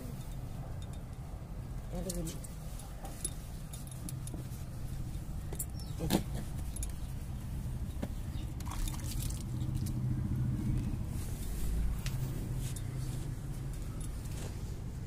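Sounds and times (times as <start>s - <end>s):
glass bangles clinking: 0.0s - 7.2s.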